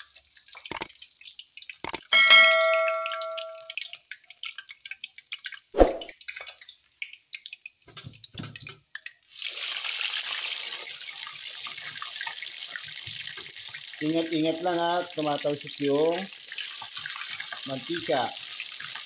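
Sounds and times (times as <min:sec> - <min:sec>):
oil crackling and popping: 0:00.0 - 0:02.1, 0:03.7 - 0:19.0
frying oil sizzling: 0:00.0 - 0:19.0
metallic ring: 0:01.9 - 0:03.7.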